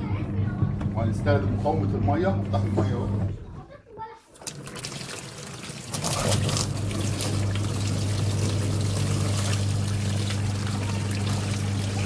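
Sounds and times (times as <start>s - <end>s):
washing machine motor humming: 0.0s - 12.0s
water pouring and splashing: 4.3s - 12.0s.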